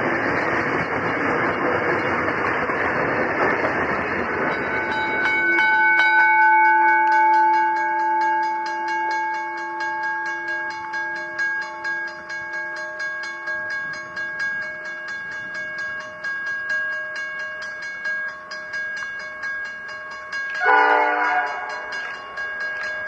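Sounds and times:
crossing bells ringing: 0:00.0 - 0:23.0
diesel freight train: 0:00.0 - 0:23.0
locomotive horn: 0:20.6 - 0:21.9.

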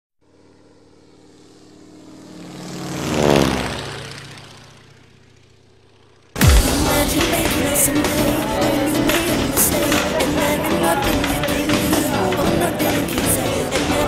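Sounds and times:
propeller airplane passing: 0:00.2 - 0:14.0
loud music: 0:06.4 - 0:14.0.

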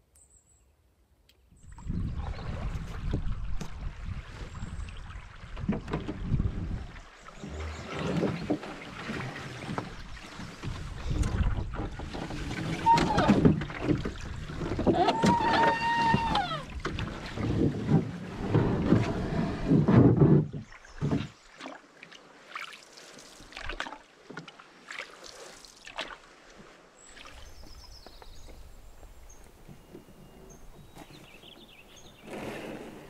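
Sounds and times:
paddle splashing water: 0:01.6 - 0:33.0.

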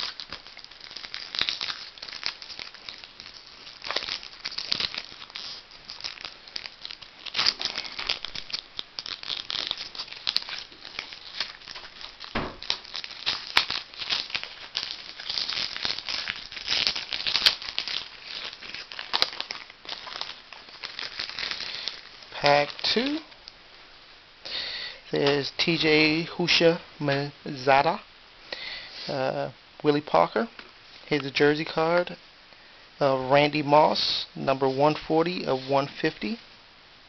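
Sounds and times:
foil wrapper crinkling: 0:00.0 - 0:23.7.

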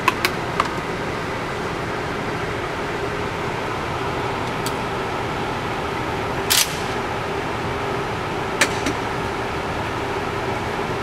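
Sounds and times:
ventilation fans humming: 0:00.0 - 0:11.0
sharp crack: 0:06.5 - 0:07.0.

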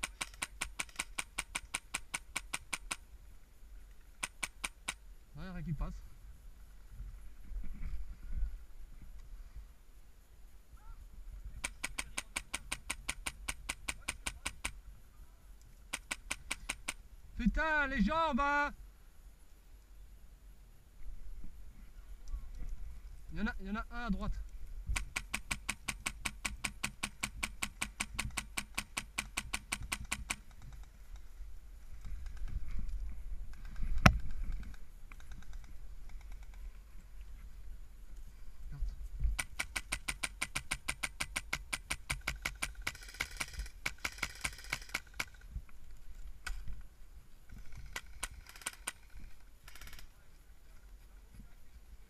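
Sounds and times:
airsoft rifle rapid fire: 0:00.0 - 0:03.0, 0:04.2 - 0:05.0, 0:11.6 - 0:14.8, 0:15.9 - 0:17.0, 0:24.9 - 0:30.6, 0:39.4 - 0:45.4, 0:47.8 - 0:49.1.

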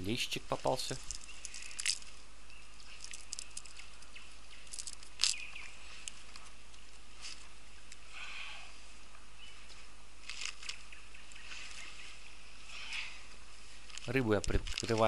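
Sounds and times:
faint steady hiss: 0:00.0 - 0:15.0
net and gear rustling: 0:00.8 - 0:08.1, 0:09.7 - 0:15.0.

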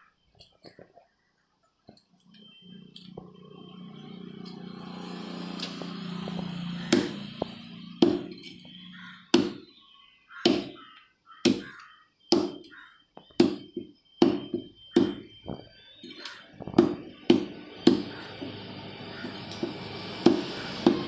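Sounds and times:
knife chopping on wooden block: 0:06.9 - 0:07.2, 0:09.4 - 0:09.6, 0:10.4 - 0:10.8, 0:11.5 - 0:12.7.

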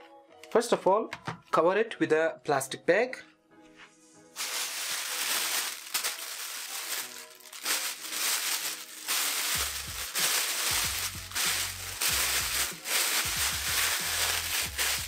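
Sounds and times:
plastic bag crinkling: 0:04.4 - 0:15.0
background music with bass beat: 0:09.6 - 0:15.0.

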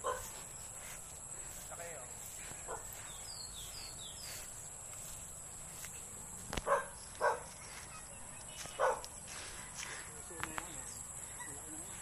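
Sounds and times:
dog barking: 0:00.0 - 0:00.4, 0:02.7 - 0:03.0, 0:06.6 - 0:07.5, 0:08.8 - 0:09.1
insect drone: 0:00.0 - 0:12.0
bird chirps: 0:02.7 - 0:04.6.

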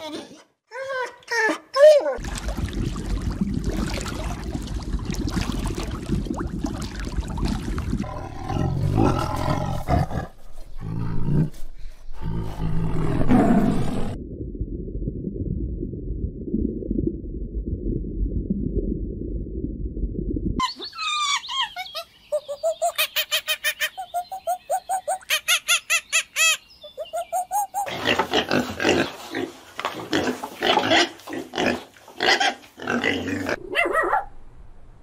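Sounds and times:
tiger roaring: 0:08.0 - 0:11.5
tiger growling: 0:08.0 - 0:11.6.

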